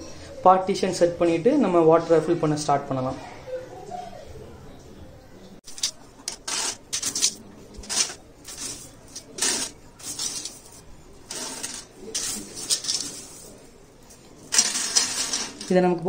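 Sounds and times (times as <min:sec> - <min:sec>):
stones rattling against glass: 0:05.6 - 0:13.5, 0:14.4 - 0:15.8.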